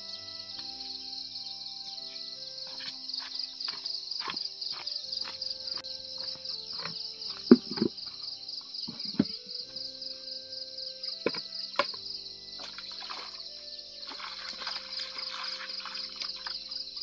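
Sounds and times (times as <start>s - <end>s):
insects chirring: 0.0s - 17.0s
knocks: 6.8s - 8.0s.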